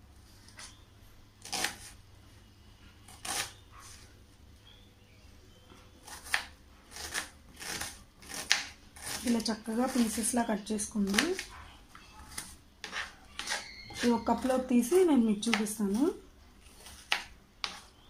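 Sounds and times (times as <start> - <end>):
knife chopping on plastic board: 6.1 - 9.3, 12.3 - 16.1, 16.7 - 17.9.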